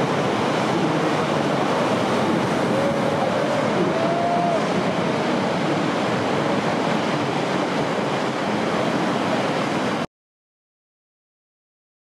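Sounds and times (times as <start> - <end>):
ocean wave breaking: 0.0 - 10.1.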